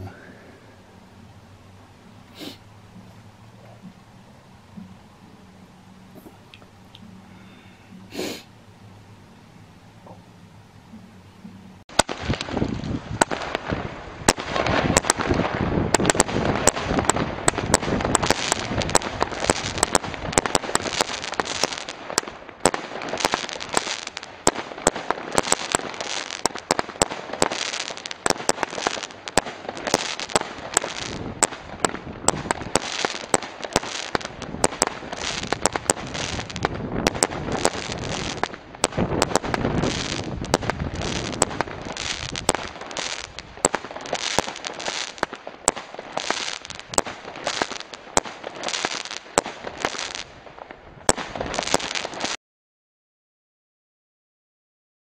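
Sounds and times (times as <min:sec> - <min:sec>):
firework crackling: 0:00.0 - 0:52.4
firework bangs: 0:11.8 - 0:52.4.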